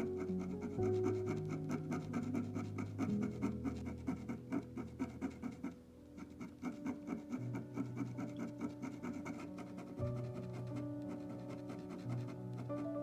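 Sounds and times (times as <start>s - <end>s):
soft music of held chords: 0.0s - 13.0s.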